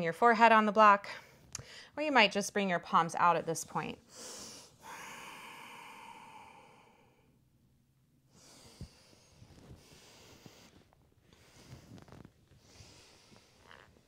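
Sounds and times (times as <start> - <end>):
woman breathing: 1.1 - 2.0, 4.0 - 7.5, 8.2 - 13.9.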